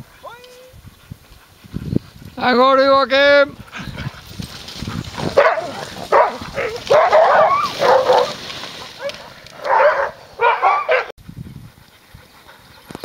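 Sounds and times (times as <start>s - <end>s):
dogs barking and yelping: 3.6s - 11.1s.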